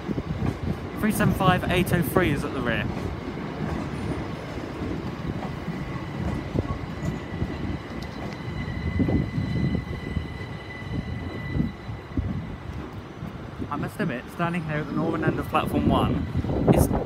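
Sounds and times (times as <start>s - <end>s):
train equipment whine: 0.0s - 17.0s.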